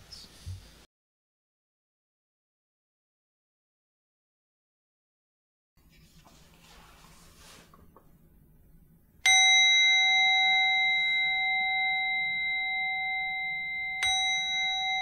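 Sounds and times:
bowl bell ringing: 9.2s - 15.0s.

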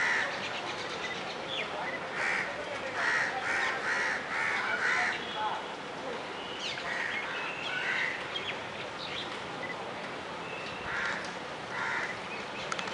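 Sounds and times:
harsh bird calls: 6.4s - 9.7s, 10.4s - 12.9s.

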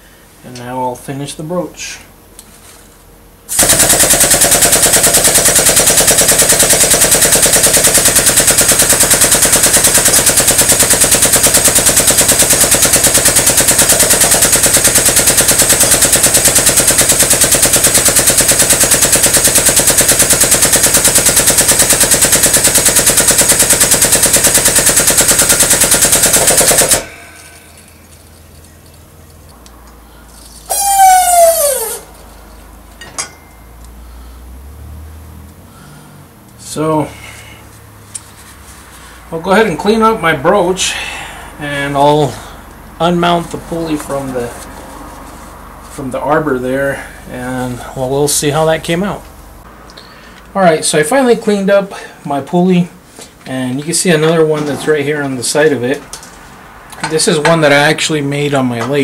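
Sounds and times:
pneumatic wrench hammering: 3.5s - 27.9s, 30.7s - 32.0s
loud squeal falling in pitch: 30.7s - 32.1s.

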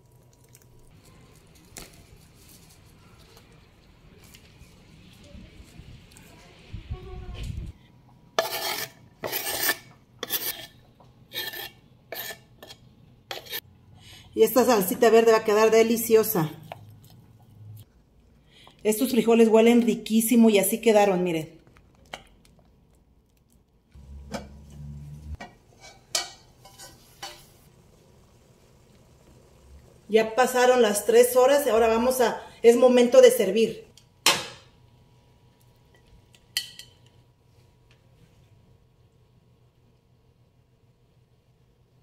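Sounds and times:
low hum: 24.0s - 25.4s.

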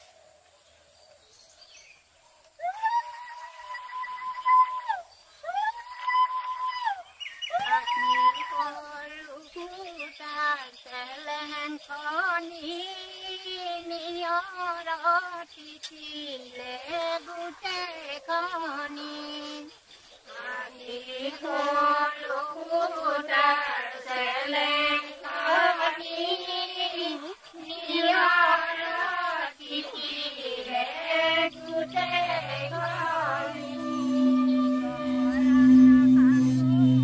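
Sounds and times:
chant-like singing: 2.7s - 37.0s
low drone: 31.0s - 37.0s.

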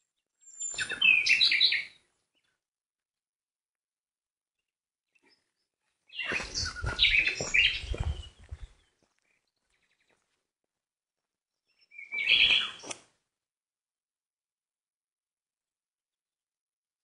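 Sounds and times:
small birds chirping: 0.0s - 2.7s, 4.6s - 10.5s, 11.5s - 13.2s.

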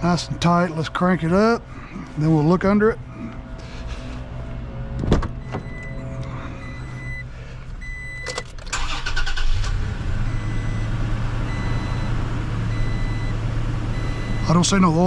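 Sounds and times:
truck engine starting and idling: 0.0s - 15.0s.

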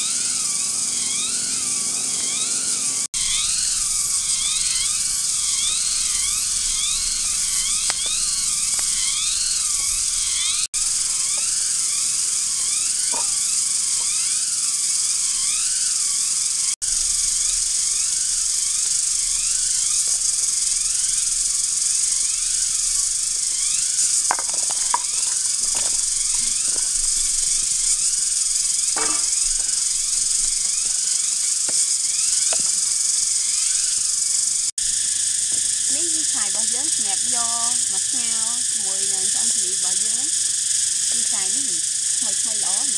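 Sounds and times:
rising chirps: 0.0s - 16.8s
high-pitched insect buzzing: 0.0s - 42.9s.

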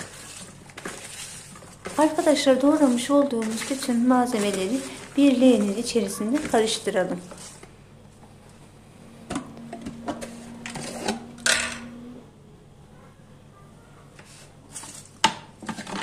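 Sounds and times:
vegetables rustling and crunching: 0.0s - 8.2s, 14.2s - 16.0s
faint steady hum: 0.0s - 15.8s.

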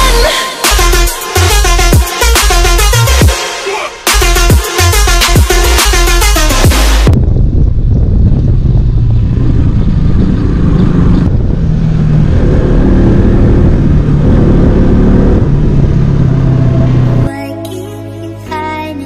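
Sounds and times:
music: 0.0s - 7.2s, 17.2s - 19.0s
motorcycle engine running: 7.1s - 17.3s
wind rush on microphone: 7.1s - 17.3s.

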